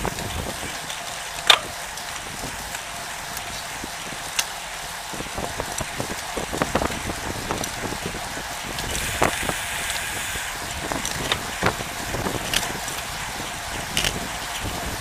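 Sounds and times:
bicycle clicks and rattles: 0.0 - 3.5, 8.7 - 15.0
wind and road noise: 0.0 - 15.0.

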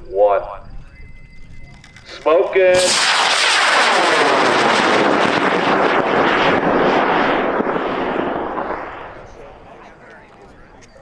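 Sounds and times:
rocket motor roaring: 2.2 - 9.7.

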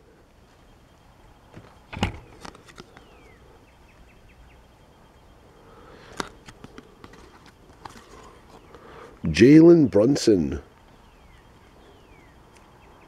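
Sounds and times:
faint bird chirp: 0.1 - 9.2, 9.8 - 13.0
cards clicking and rustling: 2.2 - 3.1.

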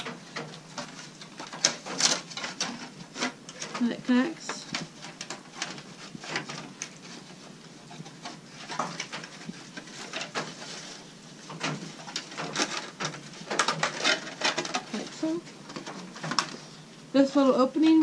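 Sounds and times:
aluminium foil crinkling: 0.0 - 18.0.

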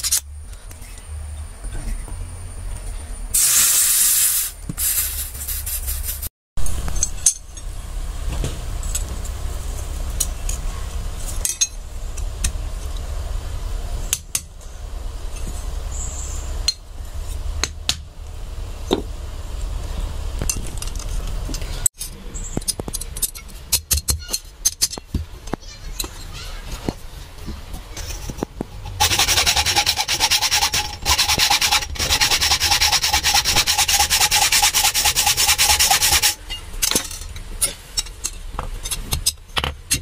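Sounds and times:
short loud hiss: 3.4 - 6.2.

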